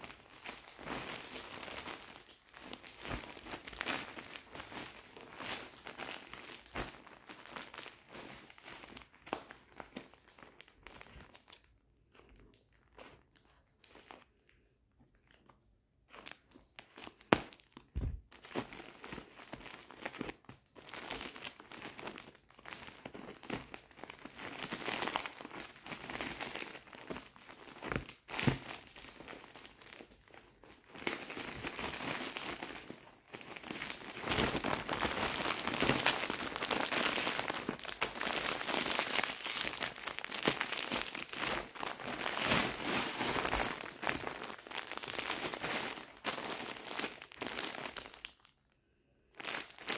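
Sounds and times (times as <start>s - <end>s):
plastic sack crinkling: 0.0s - 14.5s, 15.1s - 48.6s, 49.3s - 49.9s.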